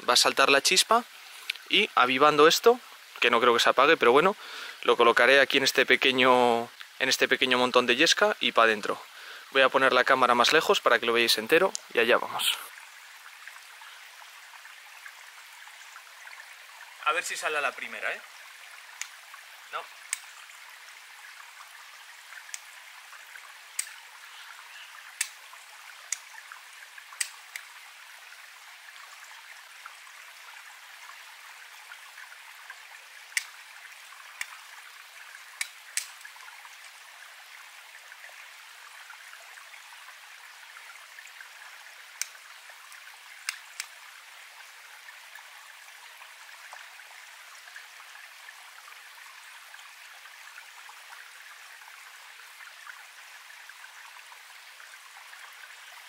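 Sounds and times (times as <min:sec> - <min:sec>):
small stream trickling: 0:00.0 - 0:56.0
flint striking steel clicks: 0:20.1 - 0:20.3, 0:23.7 - 0:24.0, 0:25.2 - 0:25.4, 0:35.6 - 0:36.3.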